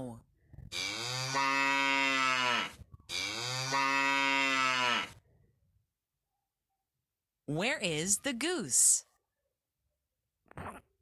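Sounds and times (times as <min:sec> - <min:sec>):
cow mooing: 0:00.7 - 0:05.2.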